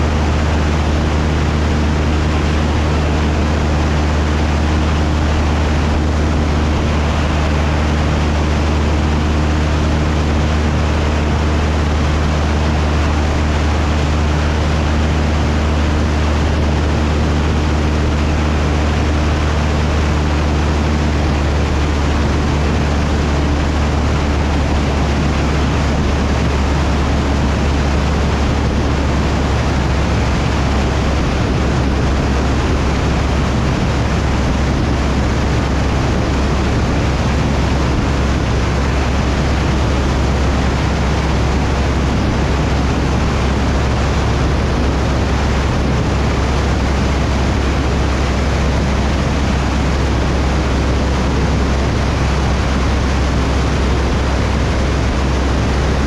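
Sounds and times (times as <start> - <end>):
airplane engine and propeller droning: 0.0 - 56.0.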